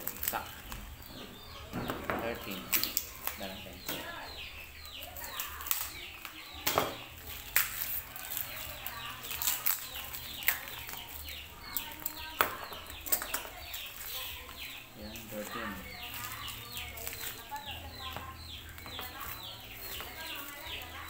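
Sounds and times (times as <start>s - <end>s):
plastic packaging crinkling: 0.0s - 1.1s, 7.2s - 14.6s, 15.2s - 21.0s
birds chirping: 0.0s - 21.0s.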